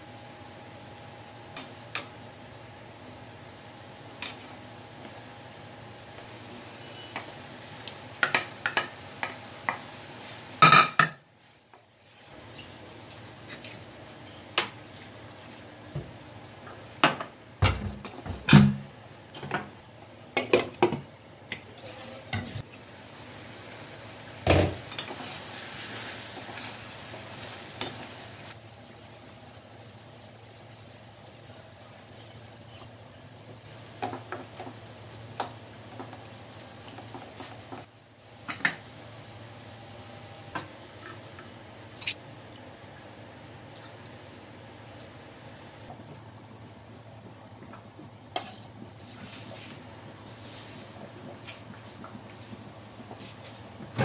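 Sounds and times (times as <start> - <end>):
food sizzling in a frying pan: 0.7 - 13.5, 21.9 - 37.8.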